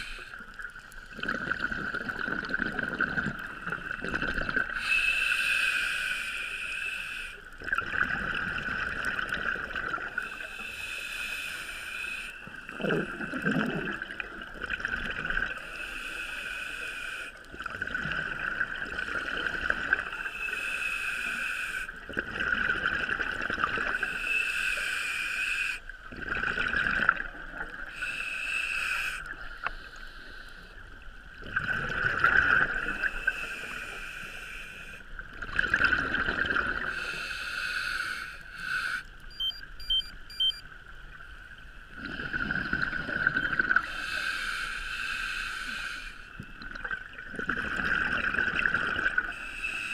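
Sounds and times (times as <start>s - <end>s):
exhaled bubbles bursting: 1.2s - 4.7s, 7.6s - 10.2s, 12.8s - 15.6s, 22.1s - 23.9s, 26.1s - 27.8s, 31.4s - 32.8s, 35.4s - 36.9s, 42.0s - 43.8s, 46.6s - 49.3s
regulator breathing hiss: 4.7s - 7.5s, 10.2s - 12.5s, 15.7s - 17.4s, 20.2s - 22.0s, 24.1s - 25.9s, 27.9s - 30.8s, 33.1s - 35.1s, 36.9s - 39.2s, 43.8s - 46.4s, 49.4s - 49.9s.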